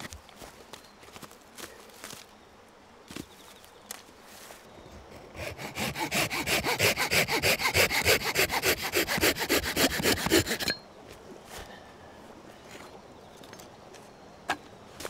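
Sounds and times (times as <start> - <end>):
hand saw cutting wood: 5.1 - 10.8.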